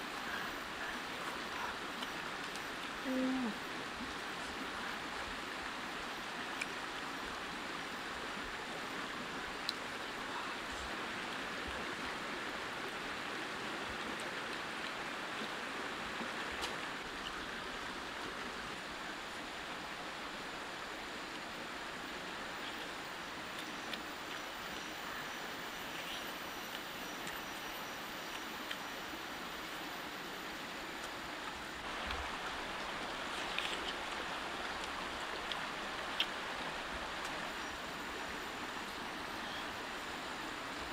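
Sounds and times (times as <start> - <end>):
stream water rushing: 0.0 - 40.9
person humming: 3.0 - 3.6
faint ticks: 25.9 - 27.6.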